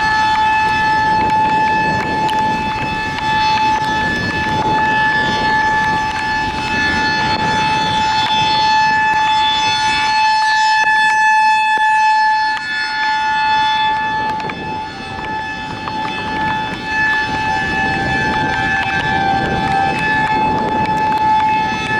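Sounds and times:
warning siren wailing: 0.0s - 21.9s.

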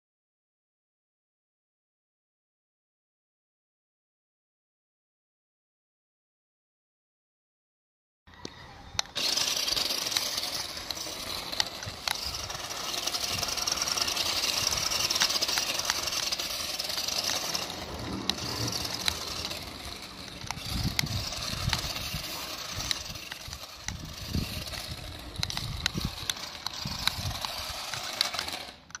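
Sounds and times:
toy truck motor whirring: 8.3s - 29.0s
sharp clicks: 8.4s - 29.0s
low rumbles: 11.1s - 28.3s.

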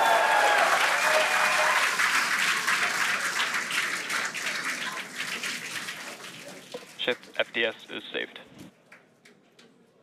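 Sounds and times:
crowd applauding: 0.0s - 5.6s.

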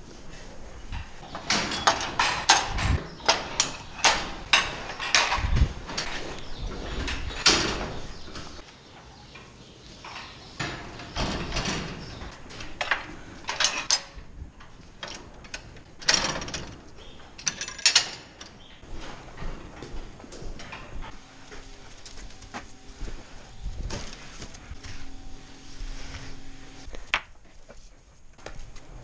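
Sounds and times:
metal clanks and rattles: 0.9s - 21.2s.

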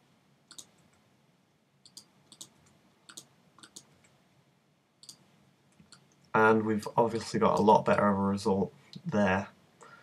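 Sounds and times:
mouse clicks: 0.5s - 1.0s, 1.8s - 4.2s, 5.0s - 6.2s.

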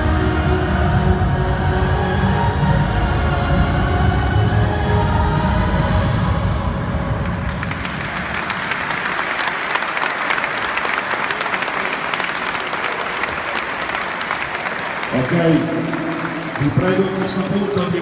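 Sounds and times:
crowd applauding: 7.2s - 18.0s.

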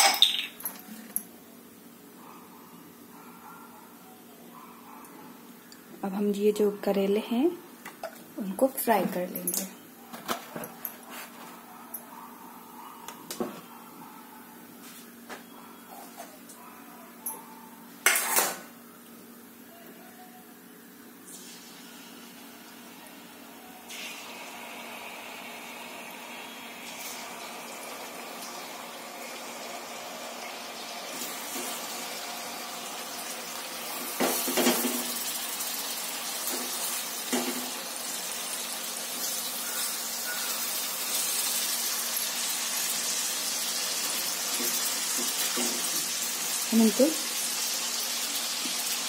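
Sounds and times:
hot oil sizzling in a pot: 21.3s - 49.0s.

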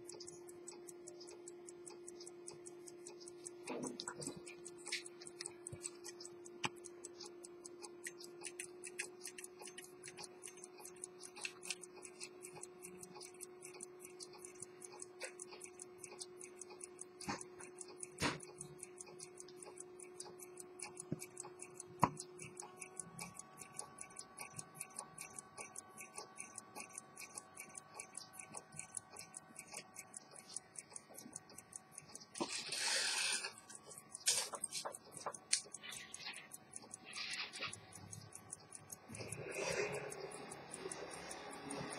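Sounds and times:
pocket watch ticking: 0.0s - 41.9s.

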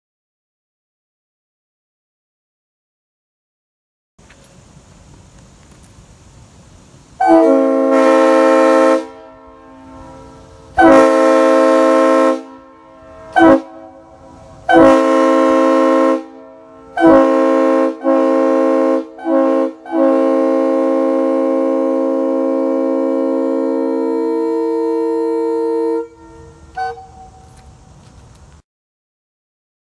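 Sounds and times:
train horn blasts: 7.2s - 27.6s.

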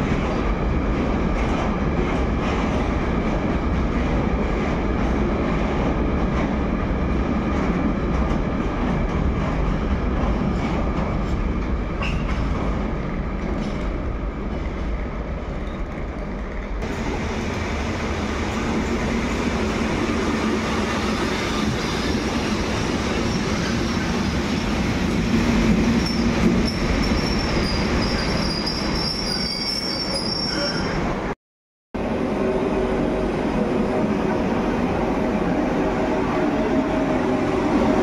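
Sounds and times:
train wheels rumbling on rail: 0.0s - 31.4s
high metallic squeal: 26.0s - 31.0s.

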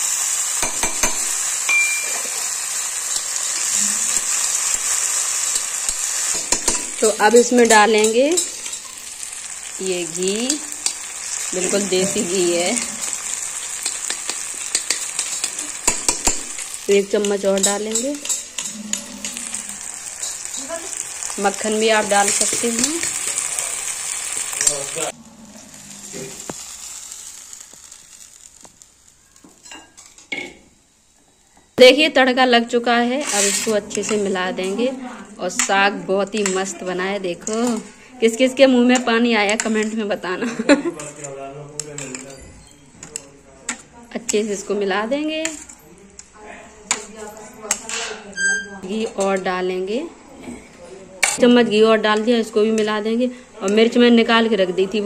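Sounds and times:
tomato sizzling in hot oil: 0.0s - 31.2s, 31.8s - 48.1s
metal spatula scraping: 3.1s - 23.5s, 24.5s - 26.6s, 33.0s - 40.2s, 40.9s - 45.9s, 46.8s - 49.5s.

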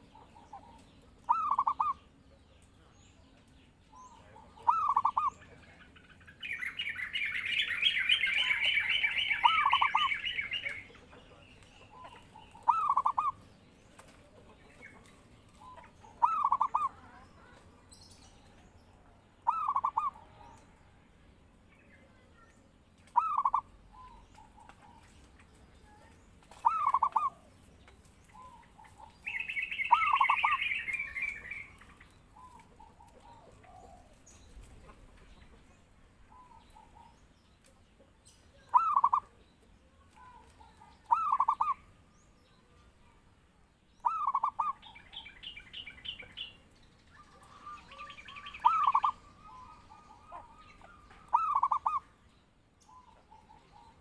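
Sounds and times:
dove cooing: 0.0s - 2.0s, 4.0s - 5.6s, 7.1s - 11.0s, 11.9s - 13.4s, 15.6s - 17.2s, 19.4s - 20.4s, 23.2s - 25.0s, 26.6s - 27.5s, 28.4s - 31.7s, 32.4s - 35.1s, 38.7s - 39.4s, 40.2s - 41.9s, 44.0s - 45.0s, 47.4s - 52.1s
rapid bird trill: 6.2s - 10.8s, 28.5s - 31.8s, 38.7s - 39.3s, 41.1s - 41.9s, 47.2s - 52.1s.

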